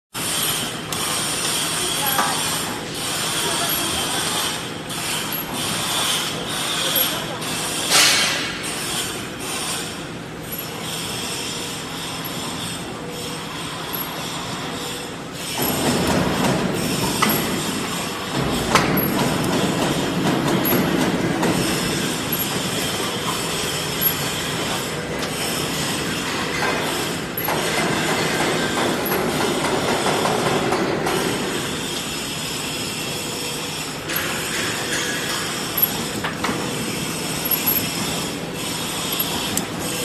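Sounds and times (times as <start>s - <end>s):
welding machine running: 0.2s - 40.0s.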